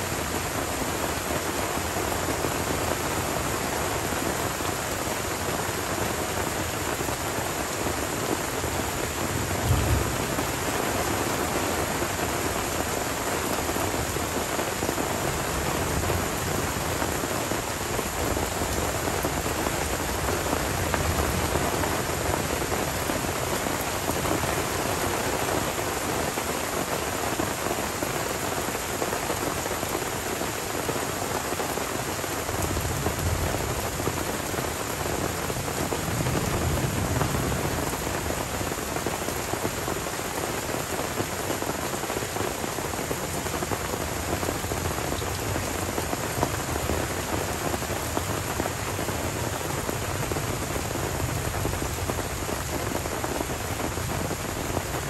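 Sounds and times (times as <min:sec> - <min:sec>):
steady rain falling: 0:00.0 - 0:55.0
rolling thunder: 0:09.3 - 0:11.2.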